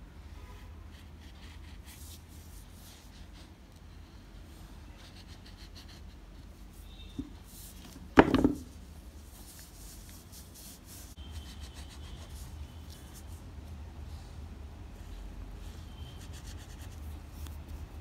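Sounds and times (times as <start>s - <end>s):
sharp knock on table: 8.2s - 8.7s.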